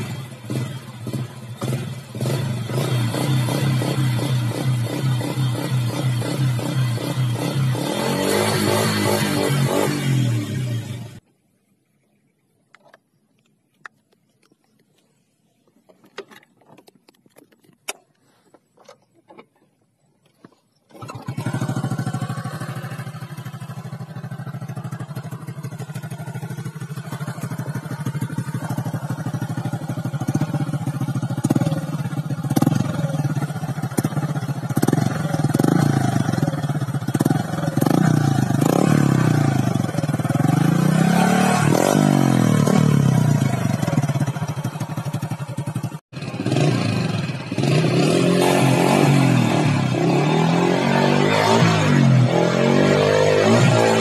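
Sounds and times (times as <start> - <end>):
motorcycle engine idling and revving: 0.0 - 12.2, 13.8 - 54.0.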